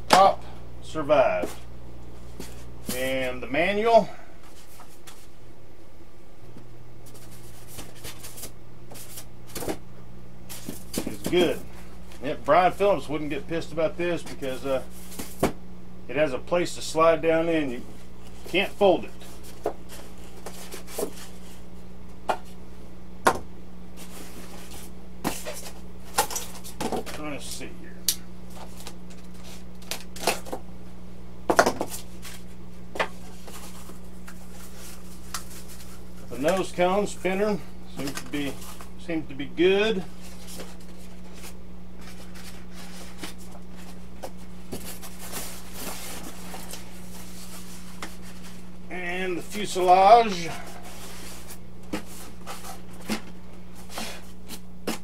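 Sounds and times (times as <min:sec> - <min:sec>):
steady low hum: 0:00.0 - 0:55.0
rubbing and scraping on styrofoam: 0:44.7 - 0:48.7.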